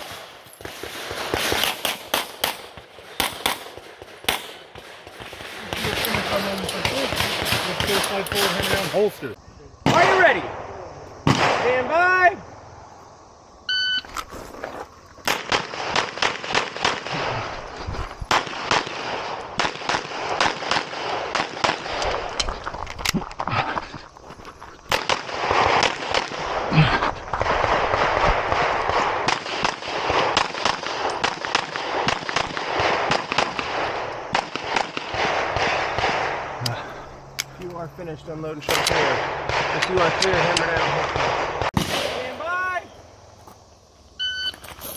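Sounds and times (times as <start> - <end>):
rapid pistol fire: 0.0 - 9.0, 15.3 - 17.4, 18.3 - 22.0, 24.9 - 26.7, 27.3 - 36.4, 38.7 - 42.2.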